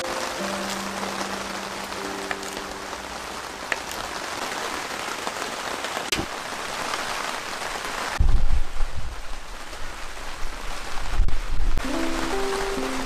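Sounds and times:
heavy rain: 0.0 - 13.0.

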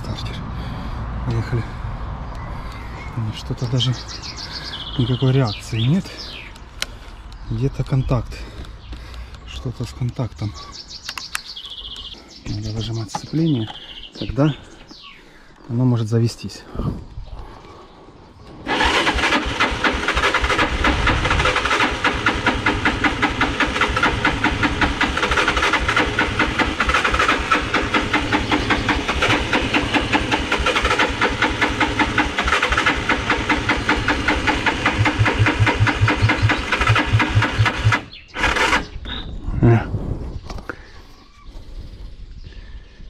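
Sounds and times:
motorcycle electric starter cranking: 18.6 - 39.0.

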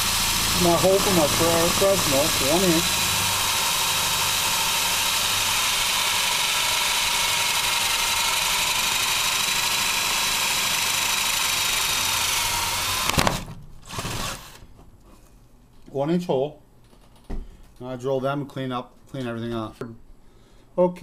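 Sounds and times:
power drill cutting plastic: 0.0 - 14.6.

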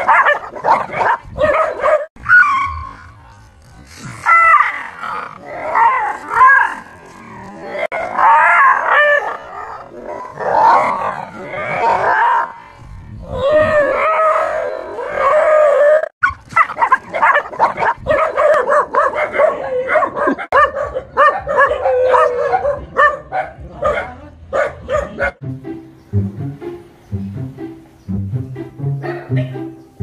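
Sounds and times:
dog howling and yelping: 0.1 - 3.1, 21.4 - 22.8.

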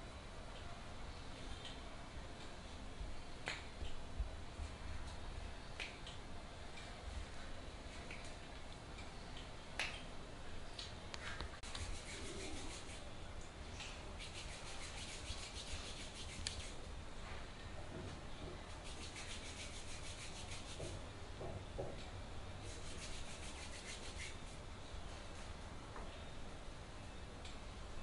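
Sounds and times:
hands rubbing skin: 11.6 - 13.1, 14.2 - 16.8, 18.8 - 21.0, 22.6 - 24.6.

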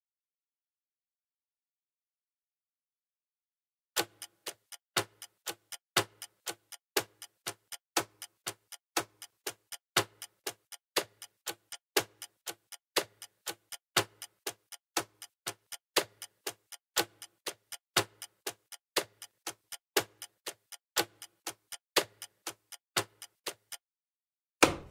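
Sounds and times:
clock ticking: 4.0 - 23.8.

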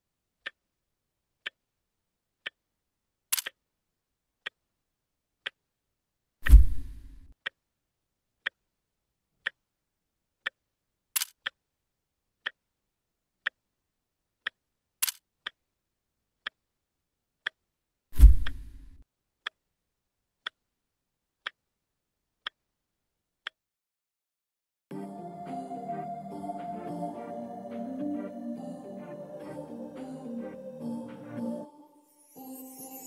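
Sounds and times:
clock ticking: 1.4 - 1.6, 8.4 - 8.6, 9.4 - 9.6, 13.4 - 13.6
sharp high clicks: 3.3 - 3.6.

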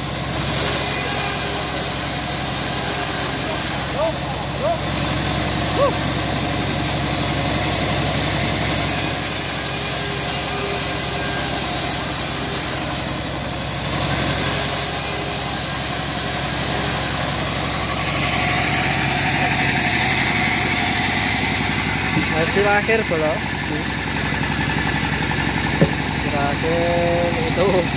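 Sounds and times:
sawmill engine humming: 0.0 - 27.9
saw blade hissing through wood: 0.4 - 4.0, 8.9 - 13.0, 14.1 - 22.6.

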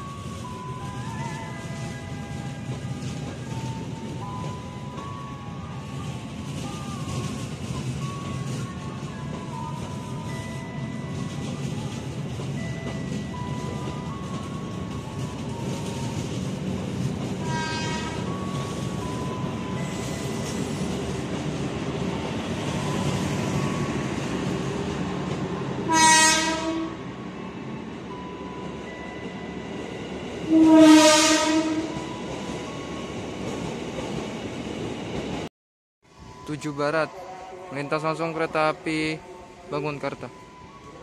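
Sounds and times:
train coaches rumbling past: 0.0 - 35.5
train horn blasts: 17.4 - 18.3, 25.9 - 27.1, 30.5 - 32.0.

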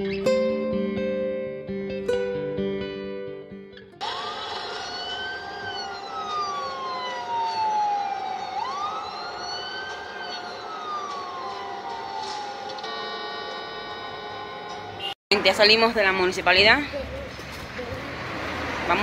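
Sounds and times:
siren wailing: 4.0 - 15.1.

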